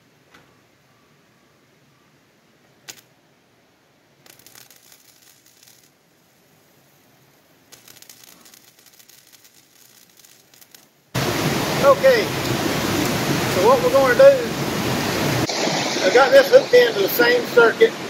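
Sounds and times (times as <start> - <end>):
arc welder crackling: 2.8 - 3.1, 4.2 - 6.4, 7.6 - 11.3.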